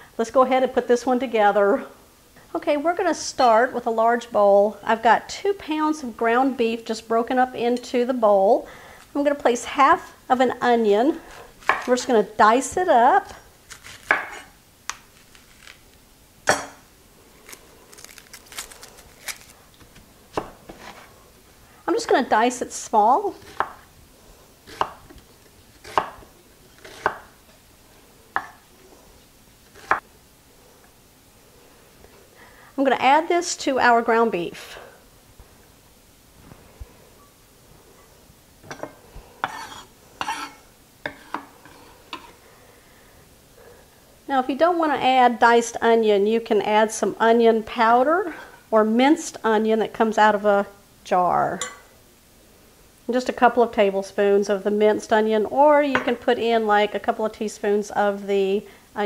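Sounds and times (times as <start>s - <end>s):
dry onion skin crackling: 11.5s - 12.1s, 13.6s - 16.1s, 17.3s - 20.4s
knife scraping on cutting board: 25.8s - 27.2s, 38.7s - 42.4s.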